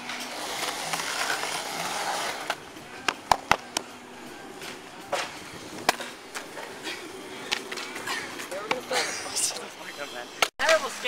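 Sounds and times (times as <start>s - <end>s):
skateboard clacking: 0.0s - 9.0s.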